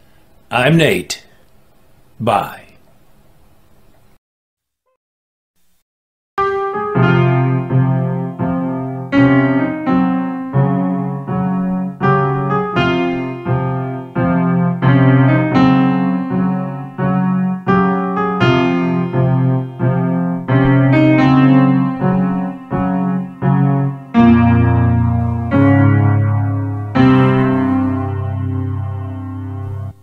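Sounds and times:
piano chords and notes: 0:06.4 - 0:30.0.

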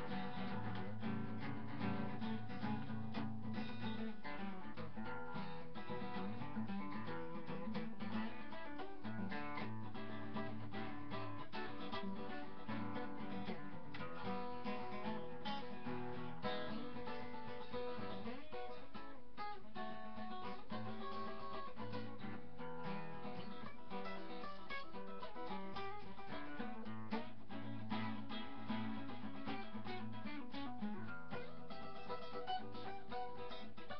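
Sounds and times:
strummed acoustic guitar: 0:00.0 - 0:33.9.

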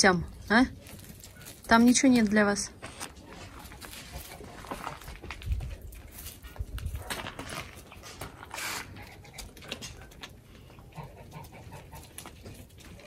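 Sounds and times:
shuffling steps: 0:00.7 - 0:08.4.

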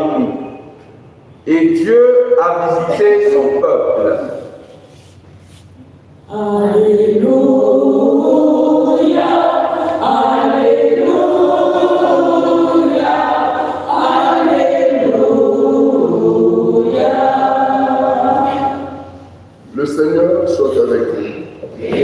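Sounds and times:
choir and congregation singing: 0:06.3 - 0:19.4, 0:21.6 - 0:22.0.

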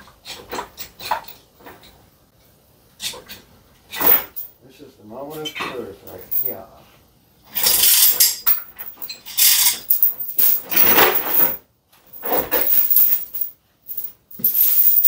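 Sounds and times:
steel chain rattling and clinking: 0:03.9 - 0:04.6, 0:06.0 - 0:06.7, 0:07.5 - 0:15.0.

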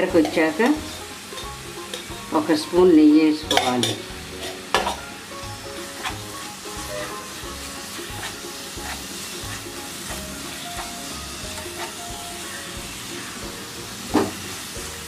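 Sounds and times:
ghee sizzling: 0:00.0 - 0:15.0
spatula scraping pan: 0:03.5 - 0:05.1, 0:05.8 - 0:13.4.

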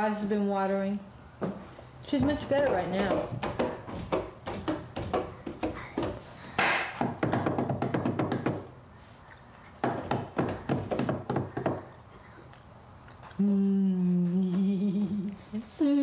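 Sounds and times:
person humming low note: 0:13.3 - 0:16.0.

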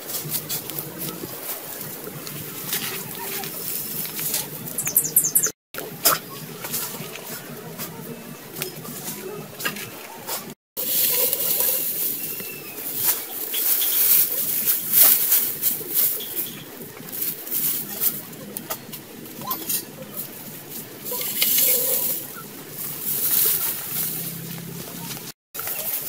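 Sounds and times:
leafy branches rustling: 0:00.0 - 0:26.0
high bird chirps: 0:04.6 - 0:05.6.

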